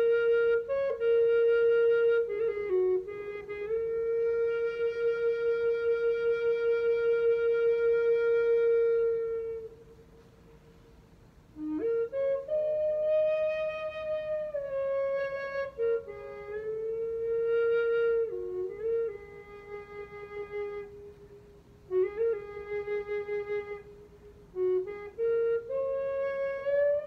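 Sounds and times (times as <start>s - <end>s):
flute playing slow melody: 0.0s - 27.0s.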